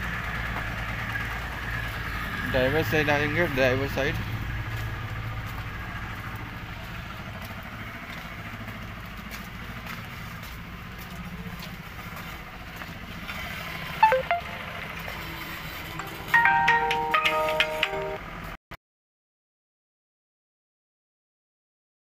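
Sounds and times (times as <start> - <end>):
diesel engine idling: 0.0 - 18.6
high chirp: 14.0 - 14.6.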